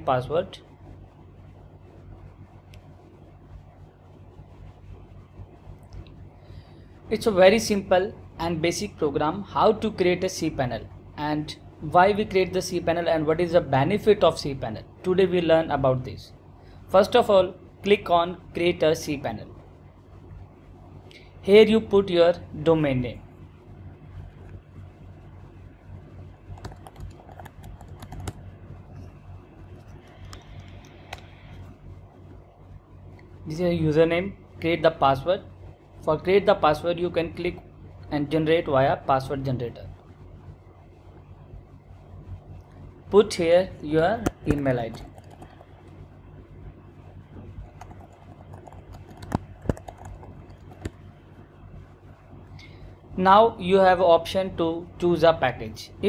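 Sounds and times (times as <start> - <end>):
steady low hum: 0.0 - 56.0
keyboard typing clicks: 26.5 - 28.4, 44.3 - 45.7, 47.6 - 51.0.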